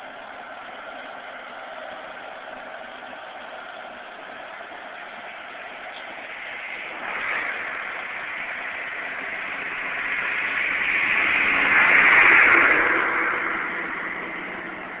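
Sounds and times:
diesel engine running: 0.0 - 15.0.

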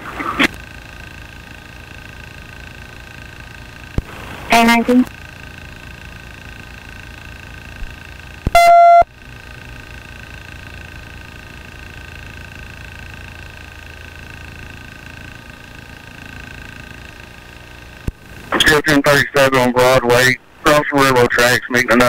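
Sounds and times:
helicopter cabin hum: 0.0 - 22.0
loud electronic beep: 8.5 - 9.1.

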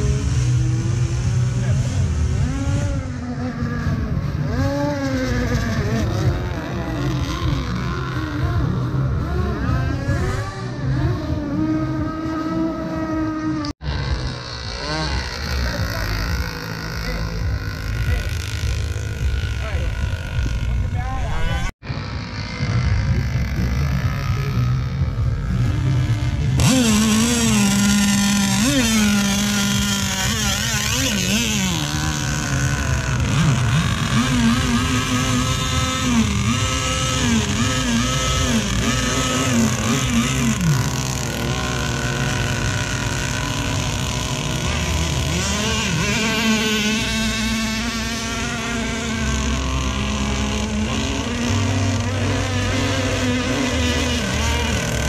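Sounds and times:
model boat engines running: 0.0 - 55.0.

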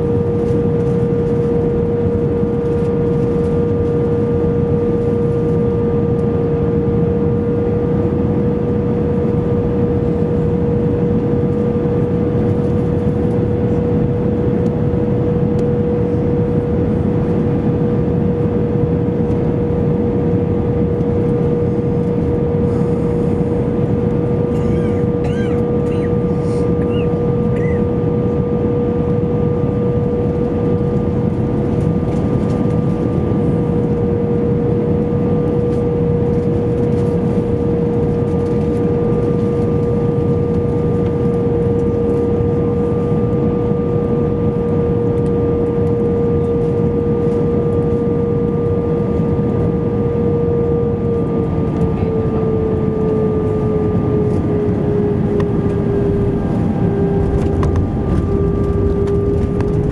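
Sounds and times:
aircraft cabin engine roar: 0.0 - 59.9
engine whine: 0.0 - 59.9.

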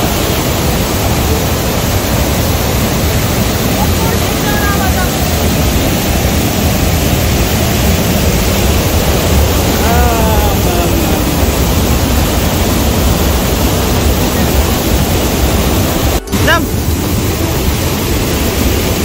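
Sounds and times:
water rushing over rocks: 0.0 - 19.0
person calling: 9.6 - 11.9.

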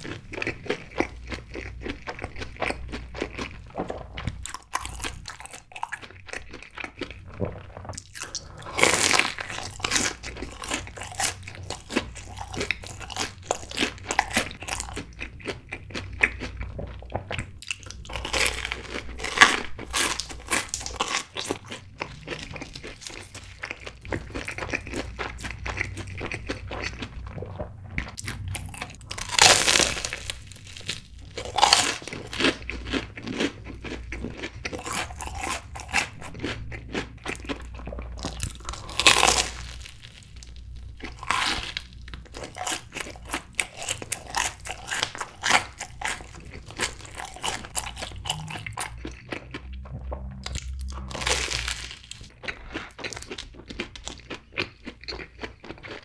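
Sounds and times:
crackling chewing: 0.0 - 56.0
crunchy bites: 17.6 - 27.0, 28.2 - 56.0.

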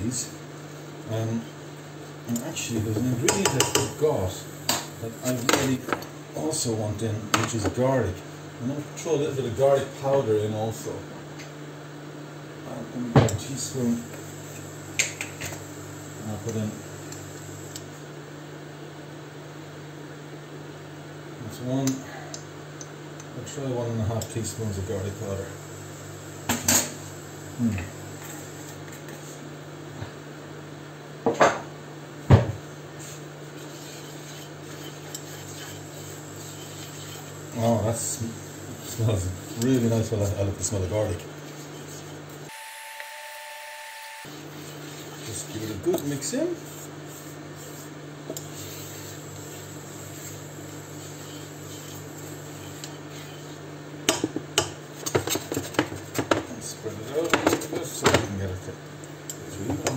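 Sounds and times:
steady low hum: 0.0 - 42.6, 43.9 - 59.9
utensils knocking against pan: 3.2 - 4.0
spatula stirring powder in pan: 33.0 - 42.4, 44.3 - 53.6.

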